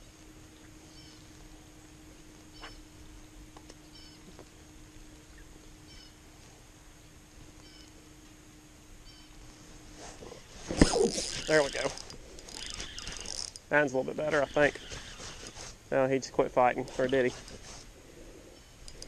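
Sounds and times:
steady low hum: 0.0 - 19.0
faint bird chirps: 0.5 - 1.3, 2.5 - 3.0, 3.8 - 4.3, 5.2 - 6.2, 7.6 - 7.9, 9.0 - 9.4.

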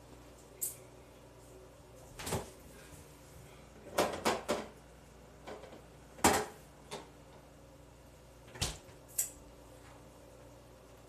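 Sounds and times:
kitchen knocks and clunks: 3.8 - 4.8, 5.4 - 7.2.

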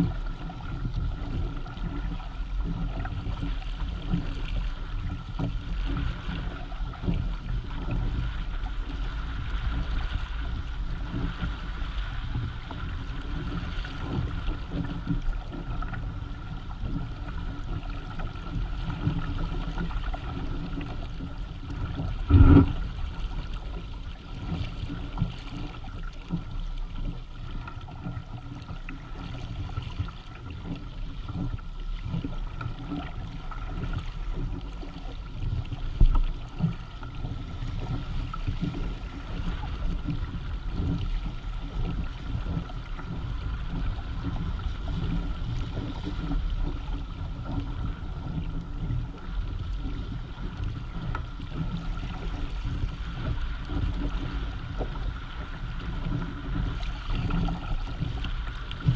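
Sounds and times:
water rushing along hulls: 0.0 - 58.9
wind buffeting microphone: 21.9 - 23.7
loud thump: 22.3 - 22.8.

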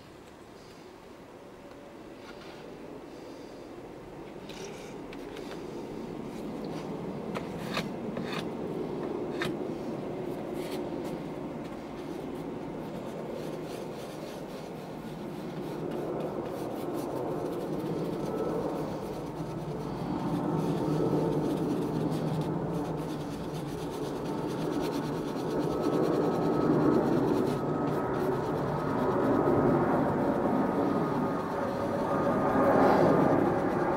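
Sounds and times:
paintbrush scrubbing canvas: 10.3 - 33.9.

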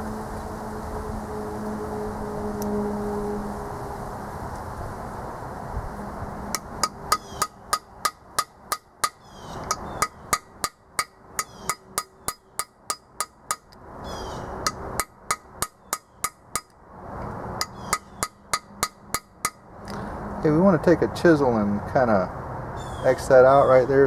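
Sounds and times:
hammer striking metal: 6.5 - 13.7, 14.6 - 16.8, 17.6 - 19.6.

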